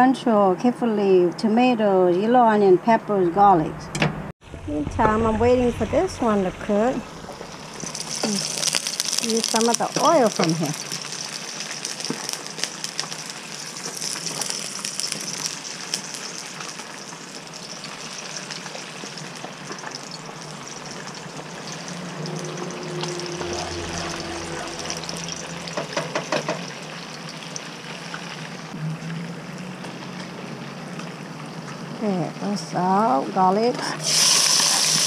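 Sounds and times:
hot oil sizzling and crackling: 6.6 - 33.2, 33.8 - 35.0.

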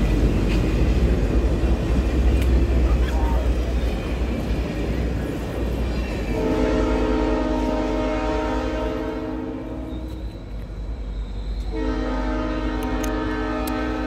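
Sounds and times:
low rumble of train: 0.0 - 14.0
locomotive air horn blasts: 6.3 - 10.2, 11.6 - 14.0.

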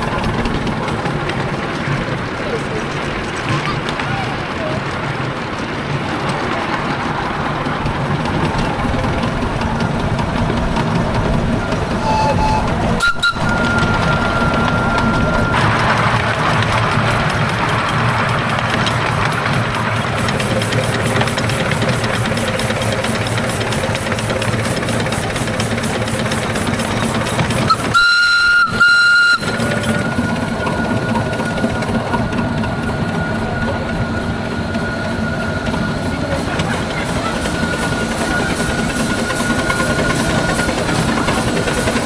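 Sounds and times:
miniature steam locomotive running: 0.0 - 42.0
faint whistle tone: 11.6 - 15.6, 27.5 - 31.8
steam whistle blasts: 12.0 - 15.7, 27.7 - 30.7.

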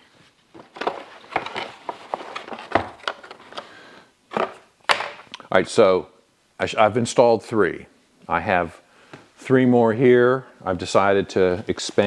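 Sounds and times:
paper rustling: 0.5 - 3.7.

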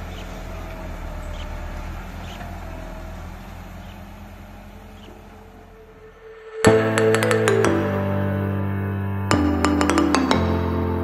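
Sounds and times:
tractor engine running: 0.0 - 6.0.

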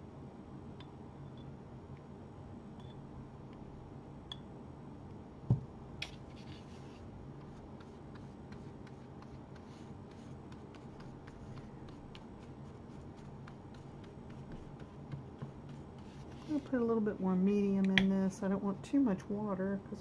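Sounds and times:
low room hum: 0.0 - 20.0
paintbrush scratching strokes: 6.2 - 16.9.

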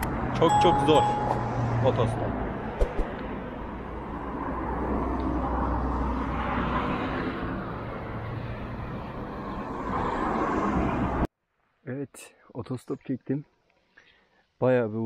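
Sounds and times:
cars passing on asphalt: 0.0 - 11.3.

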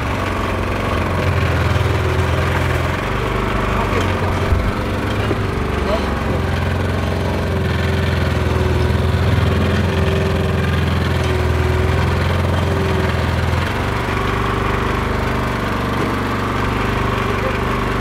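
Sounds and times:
boat motor humming: 0.0 - 18.0.

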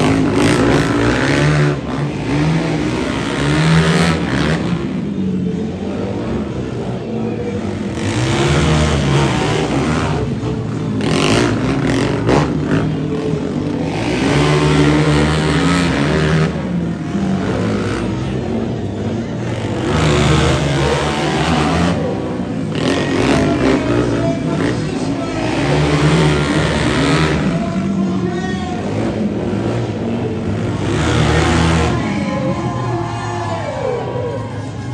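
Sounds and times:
quad engines revving: 0.0 - 34.9.

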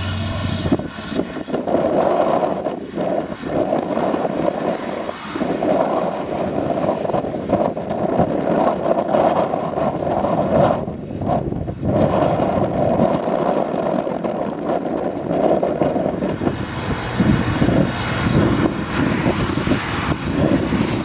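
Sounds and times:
forage harvester running: 0.0 - 1.7.

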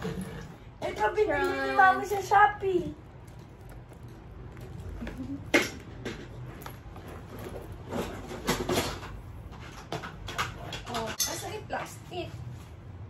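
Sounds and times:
low room hum: 0.0 - 13.0
handbag rustling and clicking: 3.0 - 8.8.

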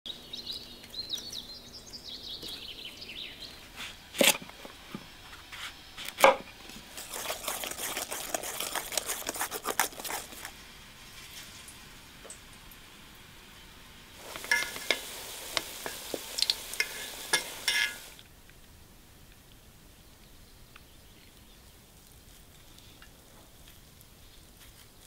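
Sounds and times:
crunchy slicing cuts: 6.9 - 10.5.

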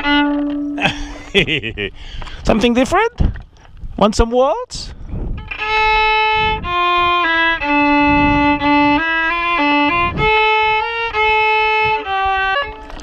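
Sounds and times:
solo violin waltz: 0.0 - 0.8, 5.4 - 13.0.

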